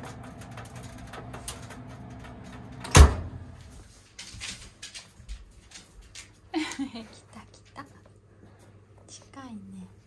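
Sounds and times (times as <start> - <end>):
oven door shutting thud: 0.0 - 3.6.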